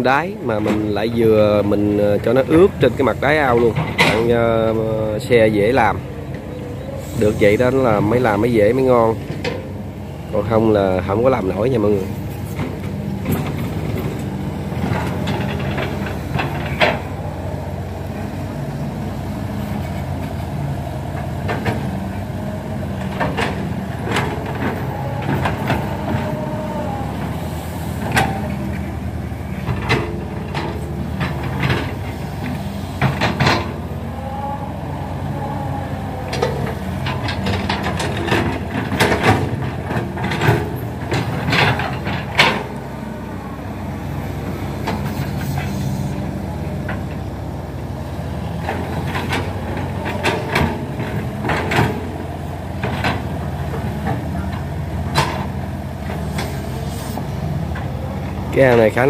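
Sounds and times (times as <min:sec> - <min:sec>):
excavator diesel engines running: 0:00.0 - 0:59.0.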